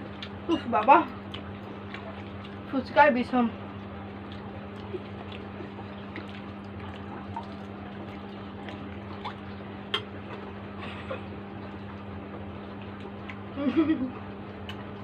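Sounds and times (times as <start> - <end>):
people eating with crunches: 0.0 - 2.7, 3.6 - 15.0
steady low hum: 0.0 - 15.0.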